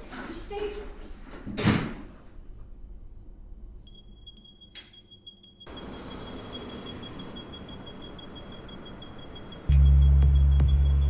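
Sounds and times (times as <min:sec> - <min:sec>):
high steady ringing tone: 0:03.8 - 0:11.0.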